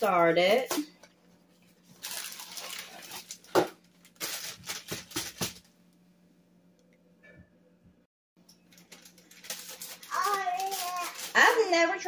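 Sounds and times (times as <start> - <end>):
plastic bag crinkling: 1.6 - 5.7, 8.6 - 12.0.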